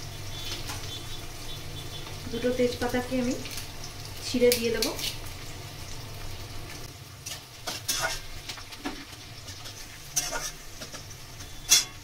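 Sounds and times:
onions sizzling in oil: 0.0s - 12.0s
spatula scraping and tapping pan: 7.2s - 12.0s.

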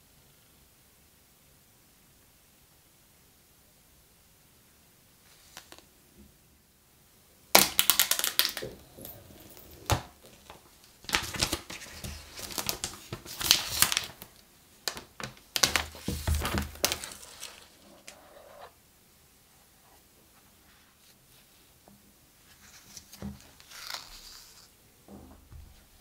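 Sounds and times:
plastic shrink-wrap crinkling: 7.6s - 18.1s.

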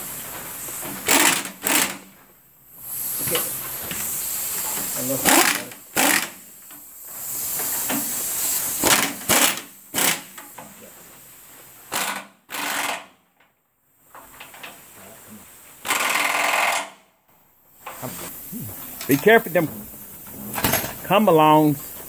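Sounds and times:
pneumatic wrench running: 1.0s - 2.0s, 3.1s - 6.5s, 7.3s - 10.5s, 11.9s - 13.1s, 15.8s - 17.0s.

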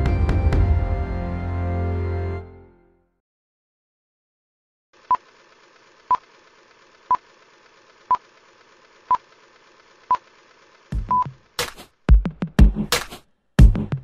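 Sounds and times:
electronic music with heavy drums: 11.0s - 14.0s.

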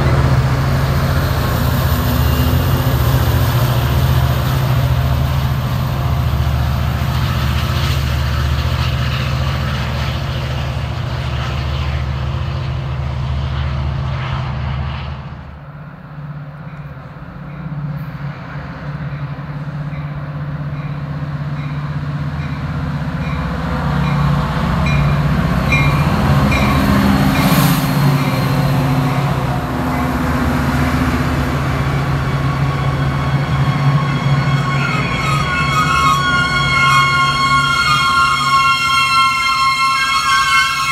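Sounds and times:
diesel locomotive engine drone: 0.0s - 40.9s
train wheel noise: 0.0s - 40.9s
train bell dinging: 19.1s - 30.2s
brake squeals: 31.9s - 40.9s.

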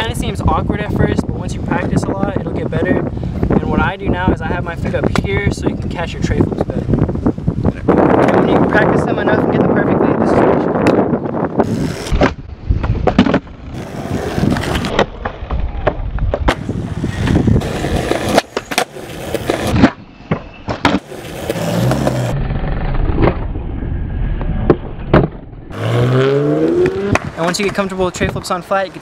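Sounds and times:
skateboard wheels rolling on concrete: 0.0s - 23.6s, 26.6s - 29.0s
skateboard tail popping and landing: 10.6s - 23.6s, 24.5s - 25.5s, 26.8s - 27.8s.

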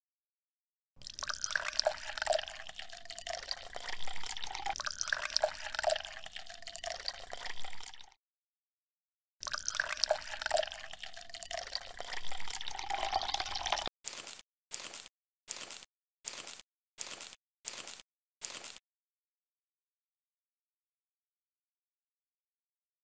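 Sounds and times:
water splashing and dripping: 1.0s - 8.1s, 9.4s - 13.9s
bubbly plinks: 1.0s - 8.2s, 9.4s - 13.9s.

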